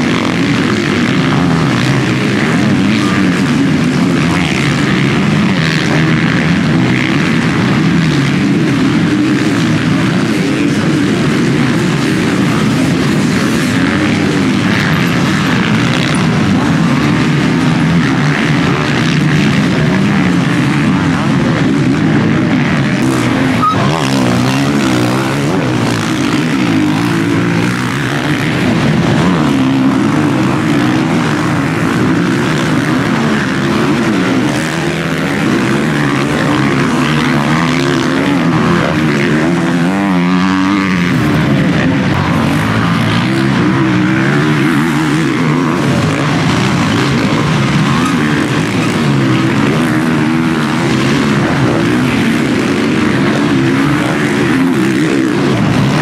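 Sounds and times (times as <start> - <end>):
motocross engines revving: 0.0 - 56.0.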